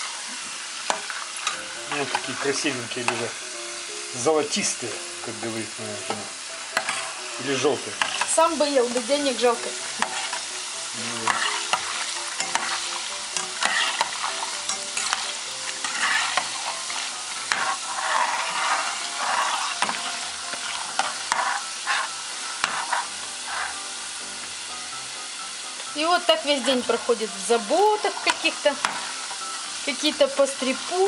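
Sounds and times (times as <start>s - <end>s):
dough deep-frying in hot oil: 0.0s - 3.4s, 4.1s - 24.6s, 25.2s - 31.0s
metal spoon scraping and clicking: 14.7s - 16.7s.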